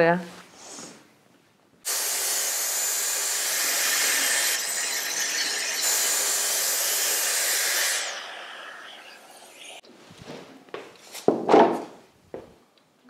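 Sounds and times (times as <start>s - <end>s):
track saw hiss and whine: 1.9s - 9.8s.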